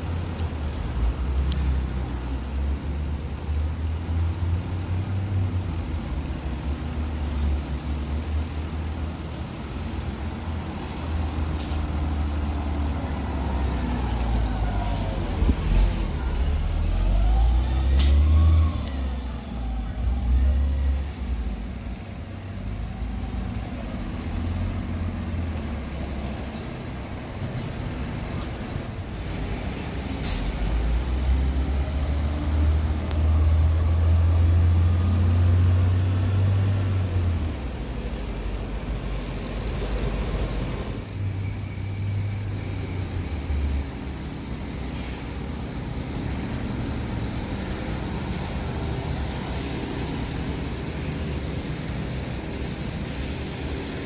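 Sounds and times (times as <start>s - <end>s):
bus engines rumbling: 0.0s - 54.0s
air-brake hisses: 30.2s - 30.7s.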